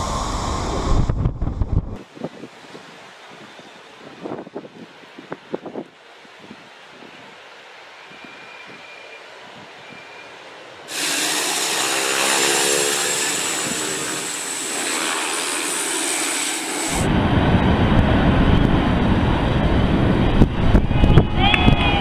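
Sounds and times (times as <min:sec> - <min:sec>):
airplane landing rumble: 0:00.0 - 0:05.9, 0:10.9 - 0:22.0
turboprop turbine whine: 0:00.0 - 0:07.1, 0:07.9 - 0:22.0.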